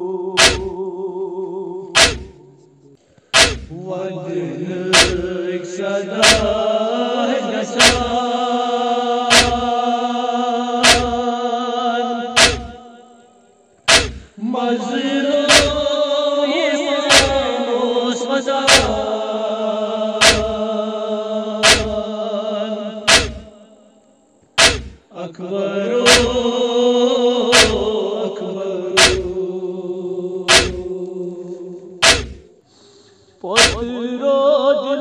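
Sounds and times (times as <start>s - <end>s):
men chanting a lament in unison: 0.0s - 2.6s, 3.4s - 13.1s, 13.9s - 23.8s, 24.6s - 32.6s, 33.4s - 35.0s
chest strikes beat: 0.4s - 0.8s, 2.0s - 2.4s, 3.4s - 3.8s, 5.0s - 5.3s, 6.2s - 6.6s, 7.8s - 8.2s, 9.3s - 9.7s, 10.8s - 11.2s, 12.4s - 12.8s, 13.9s - 14.3s, 15.5s - 15.8s, 17.1s - 17.4s, 18.7s - 19.0s, 20.2s - 20.6s, 21.6s - 22.0s, 23.1s - 23.5s, 24.6s - 25.0s, 27.6s - 27.9s, 29.0s - 29.4s, 30.5s - 30.9s, 32.0s - 32.5s, 33.6s - 33.9s.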